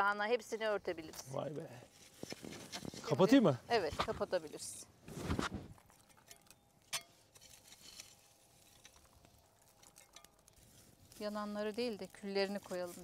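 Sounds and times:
wood fire crackling: 0:00.0 - 0:13.0
scraping rustle: 0:01.2 - 0:06.4, 0:07.0 - 0:13.0.

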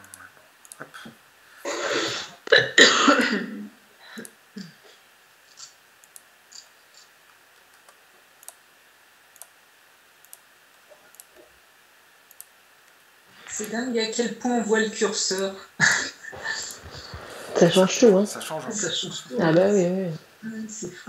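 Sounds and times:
person coughing: 0:01.7 - 0:03.7
computer mouse clicks: 0:05.5 - 0:08.6, 0:09.3 - 0:09.6, 0:10.2 - 0:11.5, 0:12.3 - 0:13.0.

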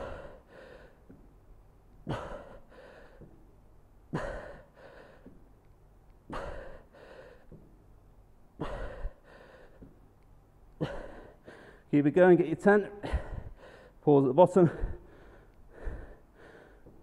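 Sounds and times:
man breathing hard: 0:00.0 - 0:01.3, 0:02.0 - 0:03.5, 0:04.1 - 0:05.5, 0:06.2 - 0:07.8, 0:08.6 - 0:10.0, 0:10.8 - 0:11.9, 0:13.0 - 0:14.0, 0:14.6 - 0:17.0.

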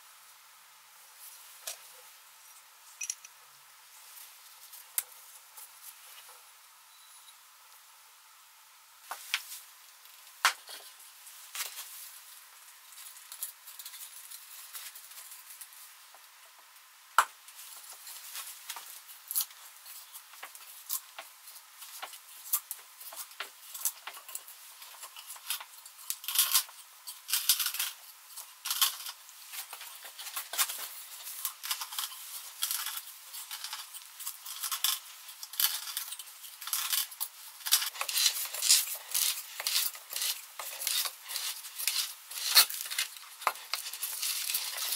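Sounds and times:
auger bit scraping wood: 0:32.7 - 0:44.9.

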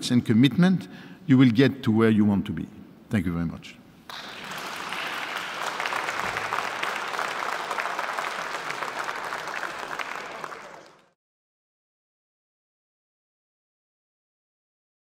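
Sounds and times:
audience applauding: 0:04.1 - 0:11.2.

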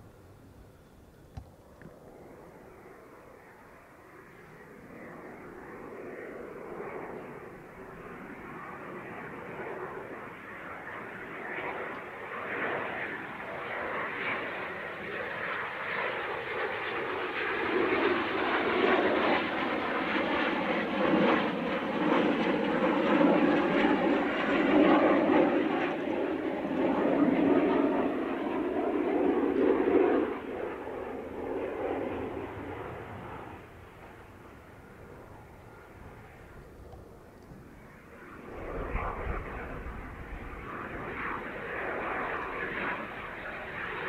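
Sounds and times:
jet engine roar: 0:00.0 - 0:44.0.

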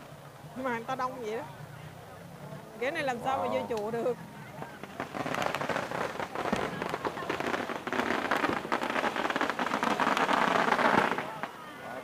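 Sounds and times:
firecrackers crackling: 0:02.9 - 0:12.0.

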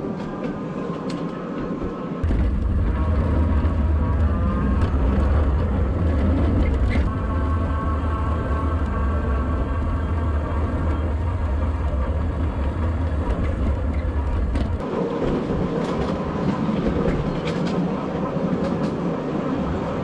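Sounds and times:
deep rumble: 0:02.2 - 0:14.9.

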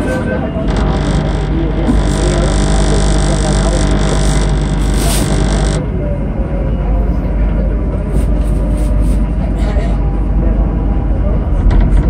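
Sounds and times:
train rumble in tunnel: 0:00.0 - 0:00.7, 0:05.8 - 0:12.0
droning hum: 0:00.0 - 0:12.0.

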